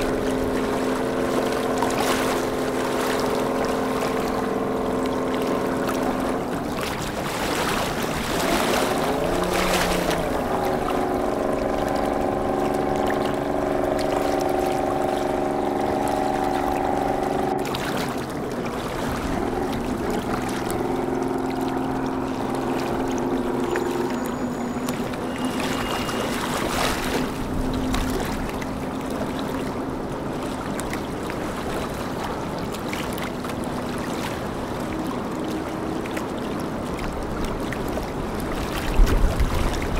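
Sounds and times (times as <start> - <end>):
boat engines droning: 0.0 - 39.9
water wash: 0.0 - 39.9
wind noise: 38.0 - 39.9.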